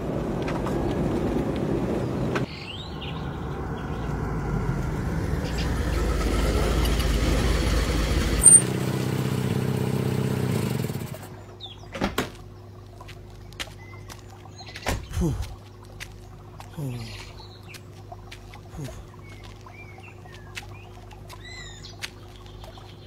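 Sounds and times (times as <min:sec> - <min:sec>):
car engine running: 0:01.0 - 0:11.5.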